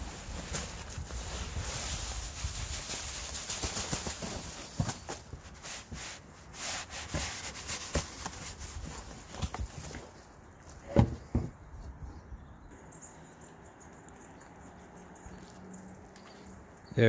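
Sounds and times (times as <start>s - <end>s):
rustles and taps: 7.0s - 11.6s.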